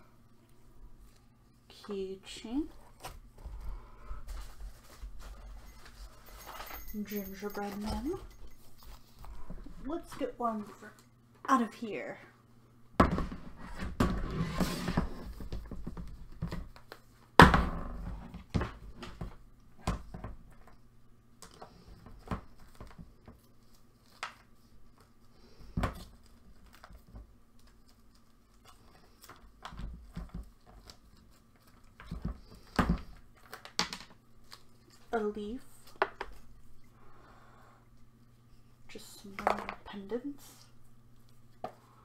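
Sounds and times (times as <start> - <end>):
low steady hum: 0.0 - 42.0
rustling in plastic bin: 4.2 - 8.0
knocks and thunks of items: 13.0 - 16.7, 17.4 - 20.4, 32.0 - 34.1.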